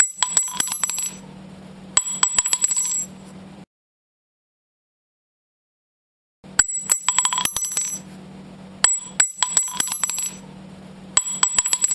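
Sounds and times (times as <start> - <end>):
low steady hum: 0.0 - 3.7, 6.4 - 11.9.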